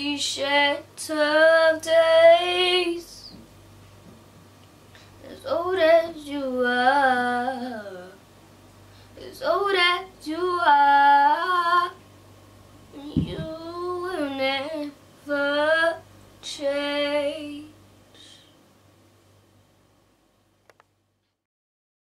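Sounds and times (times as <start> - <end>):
girl singing unaccompanied: 0.0 - 3.4, 5.2 - 8.2, 9.2 - 12.0, 12.9 - 18.4.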